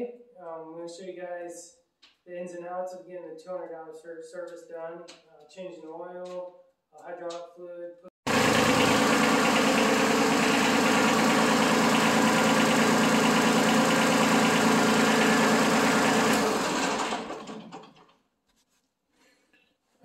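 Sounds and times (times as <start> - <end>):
tractor diesel engine running: 8.3 - 17.9.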